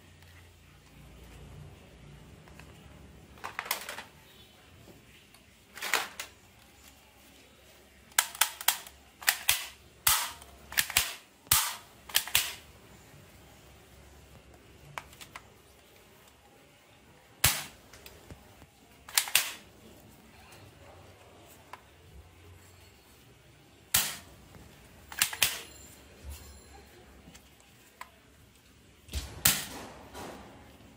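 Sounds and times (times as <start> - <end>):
toy pistol bangs: 8.2 - 12.6, 17.4 - 17.8, 19.1 - 19.6, 23.9 - 24.3, 25.1 - 25.7, 29.2 - 30.2.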